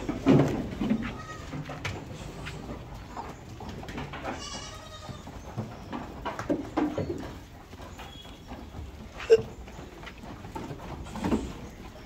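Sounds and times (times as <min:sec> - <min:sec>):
goats bleating: 0:00.9 - 0:01.7, 0:04.2 - 0:05.3.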